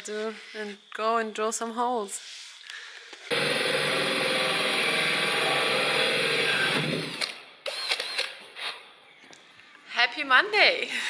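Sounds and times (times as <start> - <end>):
electric drill running: 3.3 - 8.4.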